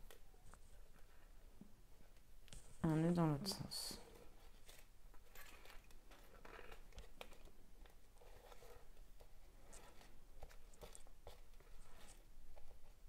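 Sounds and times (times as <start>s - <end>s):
threads rustling and scratching: 4.0s - 13.0s.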